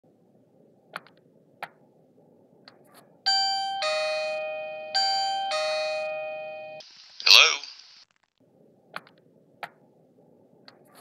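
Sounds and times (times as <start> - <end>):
electronic ding-dong chime: 3.3 - 6.8.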